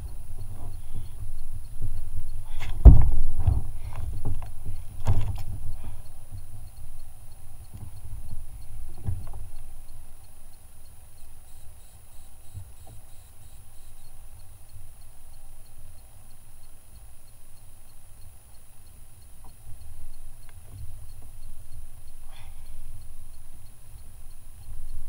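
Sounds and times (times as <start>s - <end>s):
steady low rumble: 0.0s - 25.0s
knocks and thumps of landing net: 2.6s - 4.4s.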